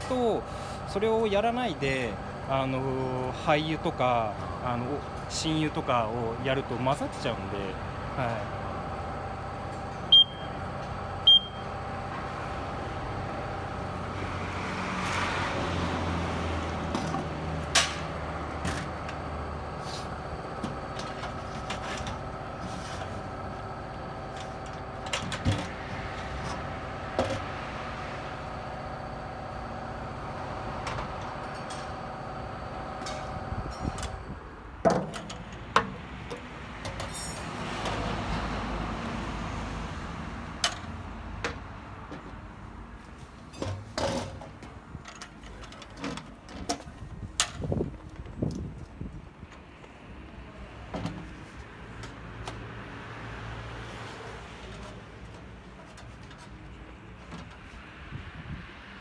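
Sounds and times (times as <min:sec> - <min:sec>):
machine beeps: 0:10.1 - 0:10.6, 0:11.2 - 0:11.7.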